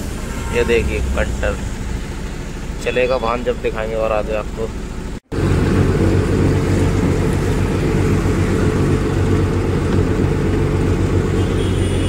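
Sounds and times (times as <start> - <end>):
vehicle rumble: 0.0 - 12.0
tyres hissing on wet road: 5.4 - 12.0.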